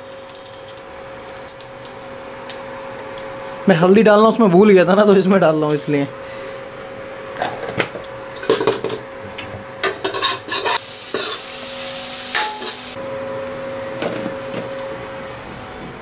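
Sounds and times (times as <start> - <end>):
seeds sizzling in hot oil: 0.0 - 3.6, 10.0 - 13.0
spoon clinking against pan: 12.4 - 12.8.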